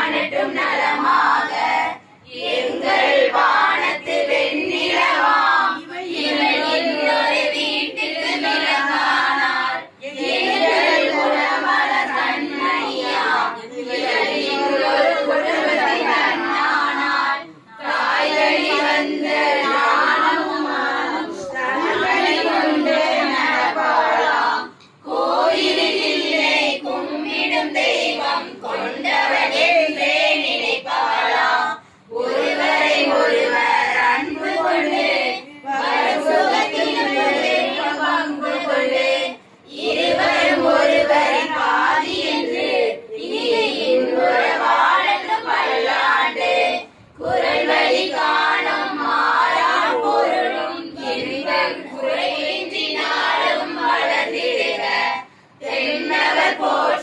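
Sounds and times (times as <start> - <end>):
women singing together: 0.0 - 57.0.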